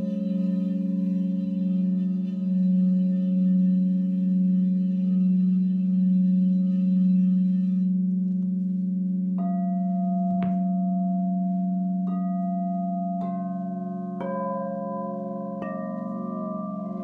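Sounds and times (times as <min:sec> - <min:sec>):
deep steady bowl tone: 0:00.0 - 0:17.0
singing bowl strikes ringing: 0:09.4 - 0:17.0.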